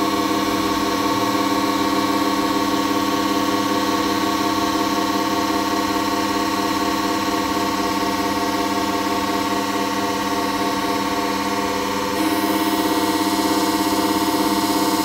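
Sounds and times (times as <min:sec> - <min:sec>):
harsh electrical buzz of fan: 0:00.0 - 0:15.0.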